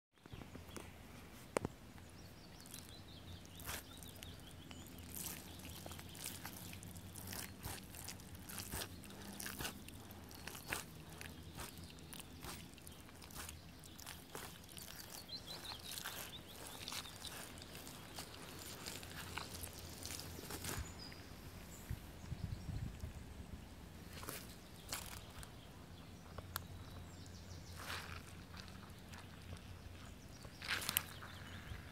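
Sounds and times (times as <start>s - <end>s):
boots squelching in mud: 2.6s - 21.0s, 24.2s - 25.4s, 27.7s - 31.5s.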